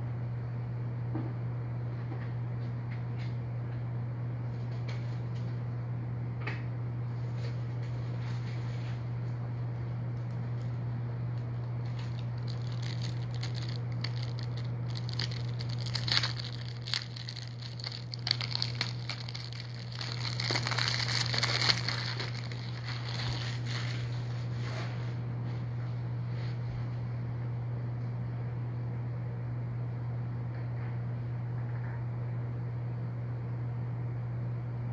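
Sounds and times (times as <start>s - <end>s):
low electrical hum: 0.0s - 34.9s
rustling handling noise: 11.5s - 25.2s.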